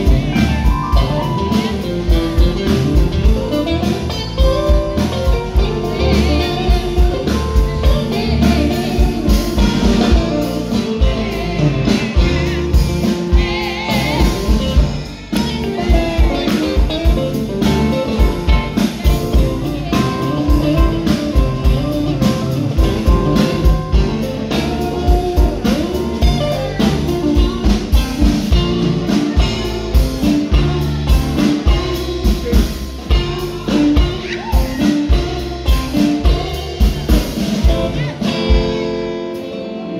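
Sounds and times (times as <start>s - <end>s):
live band playing: 0.0s - 39.9s
person singing: 0.0s - 39.9s.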